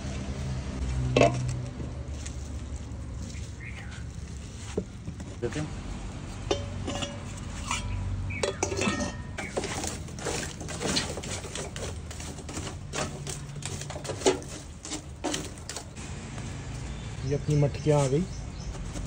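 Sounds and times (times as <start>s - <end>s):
metal tongs raking charcoal: 0.8s - 16.0s
steel plate clinking on clay pot: 6.4s - 10.0s.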